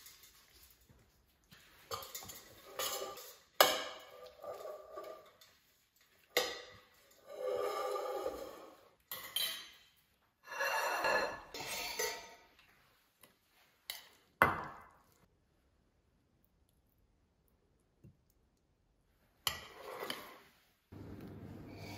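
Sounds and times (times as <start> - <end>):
fork clinking in metal bowl: 1.9 - 5.6.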